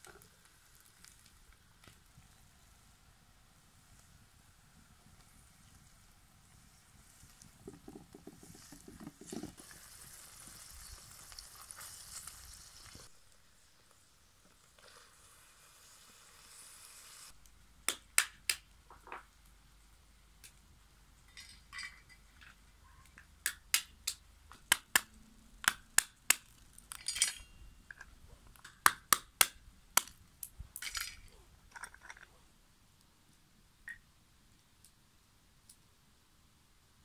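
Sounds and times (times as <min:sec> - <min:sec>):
stone cracking walnut shells: 0:23.4 - 0:27.1, 0:27.9 - 0:32.3.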